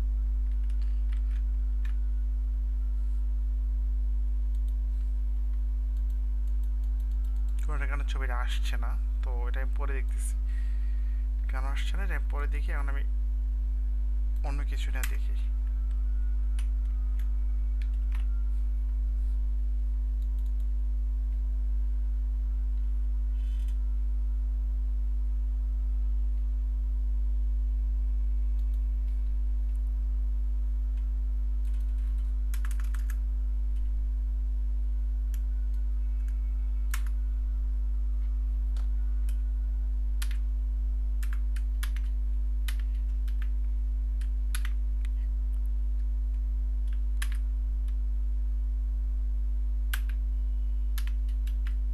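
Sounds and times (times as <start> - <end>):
steady low hum: 0.0 - 51.9
computer keyboard keystrokes: 31.6 - 33.2, 40.2 - 40.4, 41.2 - 42.1, 42.7 - 43.5, 44.2 - 44.8, 46.8 - 48.0, 49.9 - 50.2, 51.0 - 51.8.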